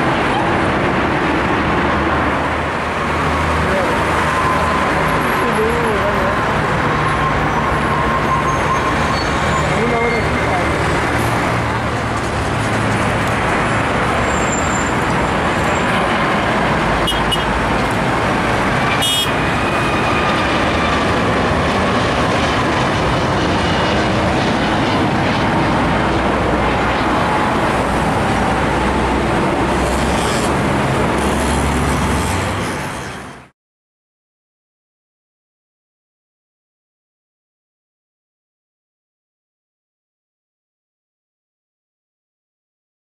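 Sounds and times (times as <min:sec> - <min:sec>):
jet engines passing overhead: 0:00.0 - 0:33.5.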